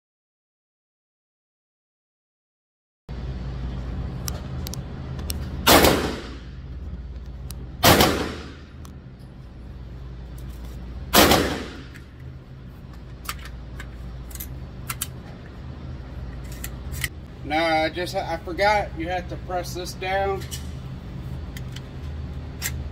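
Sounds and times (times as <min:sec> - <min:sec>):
gunshots with ringing echo: 0:05.6 - 0:06.6, 0:07.8 - 0:08.7, 0:11.1 - 0:11.9.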